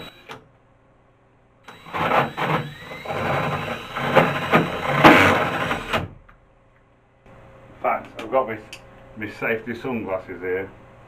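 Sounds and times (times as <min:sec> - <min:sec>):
drill hole saw cutting wood: 0:00.0 - 0:00.4, 0:01.7 - 0:06.1.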